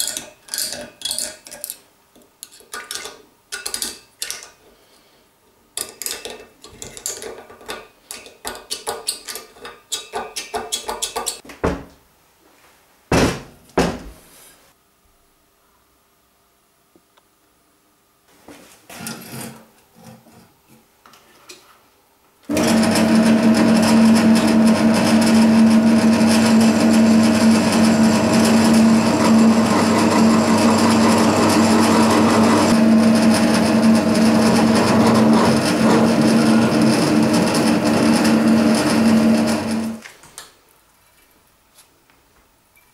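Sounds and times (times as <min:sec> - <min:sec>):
drill press drilling into steel: 0:22.5 - 0:40.0.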